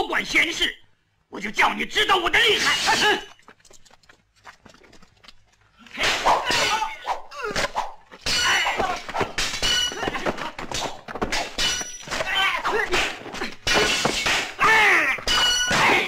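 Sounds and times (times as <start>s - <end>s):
swords clashing: 2.5s - 3.3s, 5.9s - 16.0s
whacks of blows: 5.9s - 16.0s.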